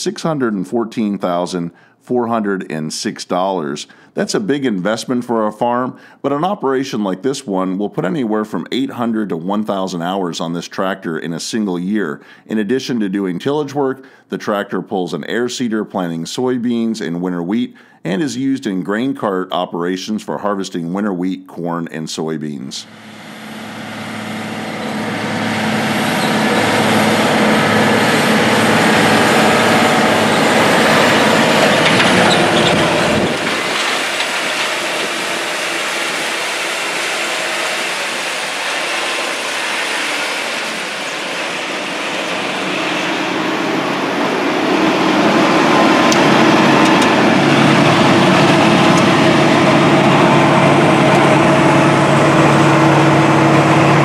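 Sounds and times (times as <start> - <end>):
diesel engine running: 22.8 - 54.0.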